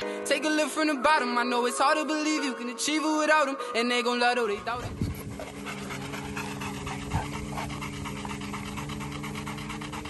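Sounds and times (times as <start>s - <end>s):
dogs panting: 4.3s - 10.0s.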